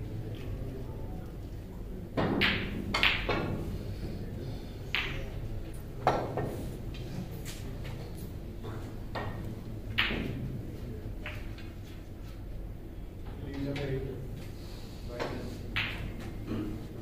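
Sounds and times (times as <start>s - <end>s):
snooker balls clicking: 2.2s - 3.6s, 4.9s - 5.4s, 8.6s - 10.6s, 11.2s - 11.8s, 15.7s - 16.4s.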